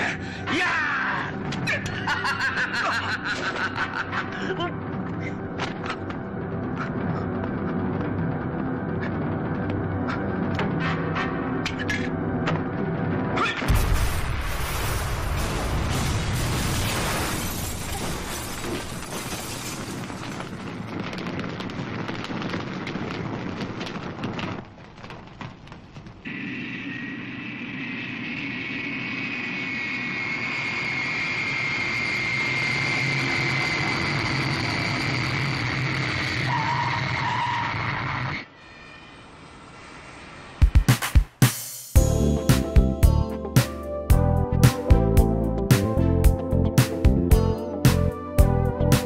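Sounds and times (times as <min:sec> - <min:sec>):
jet engines whining: 0:26.3 - 0:38.5.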